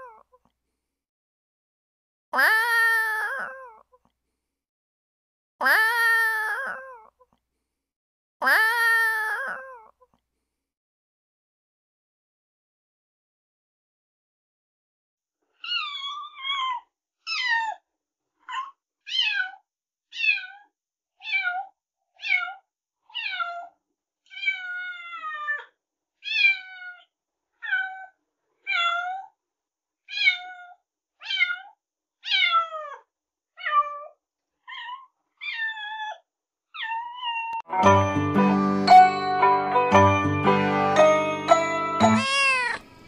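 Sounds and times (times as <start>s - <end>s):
cat meowing: 15.6s - 17.8s, 18.4s - 23.7s, 24.3s - 29.3s, 30.1s - 36.2s, 36.8s - 37.6s, 42.1s - 42.8s.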